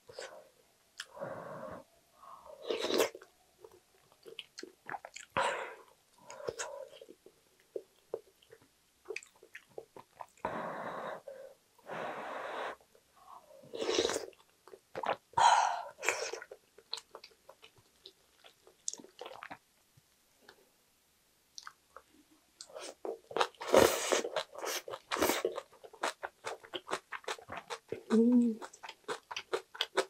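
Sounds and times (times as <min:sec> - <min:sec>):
chewing: 0:22.6 - 0:30.0.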